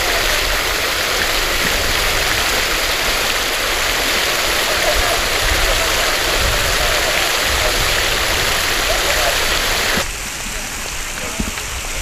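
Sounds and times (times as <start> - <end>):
water fountain splashing: 0.0 - 12.0
faint voices: 4.0 - 12.0.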